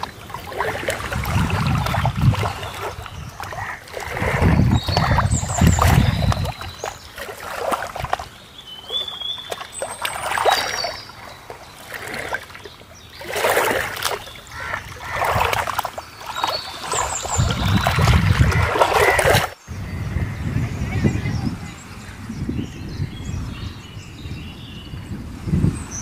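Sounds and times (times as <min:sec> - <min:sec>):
water lapping against rocks: 0:00.0 - 0:19.6.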